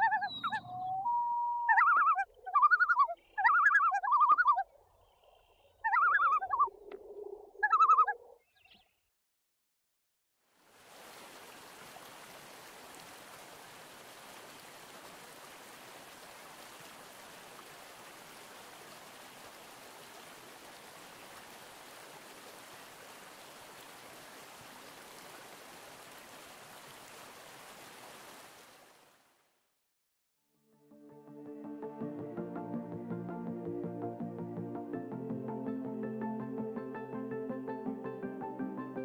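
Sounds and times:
stream water rushing: 10.6 - 29.3.

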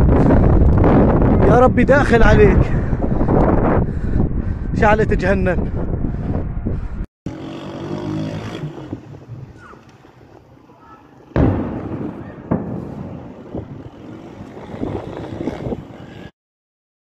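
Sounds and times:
wind rumbling on microphone: 0.0 - 16.3
faint outdoor noise: 7.3 - 16.0
distant explosion bang: 11.4 - 13.8
sharp crack: 11.4 - 13.9.

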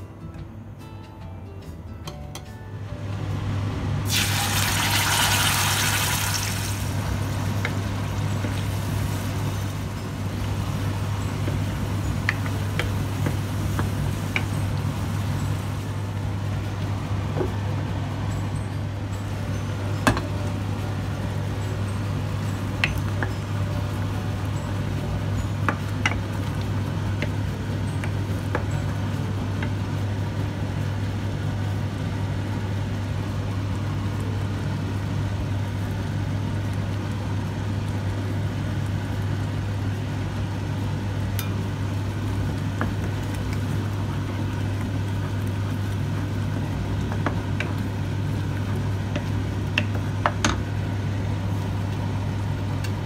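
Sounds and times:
steady low hum: 6.3 - 53.0
spatula tapping pan: 11.4 - 14.6.

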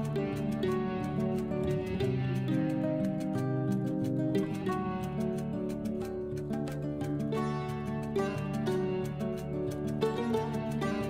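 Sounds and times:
light ticking beat: 0.0 - 11.0
soft instrumental music: 0.0 - 11.0.

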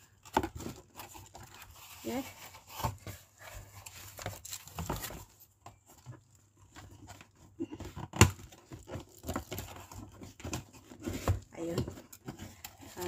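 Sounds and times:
cardboard rustling and clicking: 0.0 - 13.0
plastic wrapping crinkling: 0.5 - 5.5, 8.4 - 10.4.

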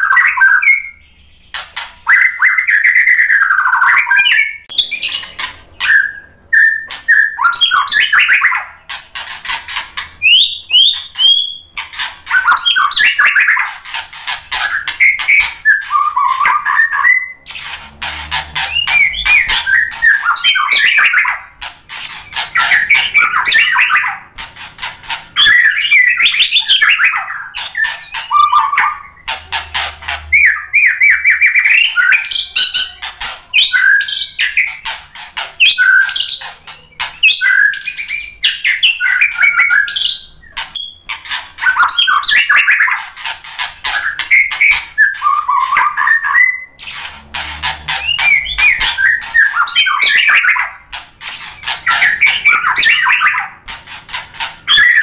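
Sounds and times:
bird singing loudly: 0.0 - 34.9, 35.5 - 43.0, 43.8 - 55.0.

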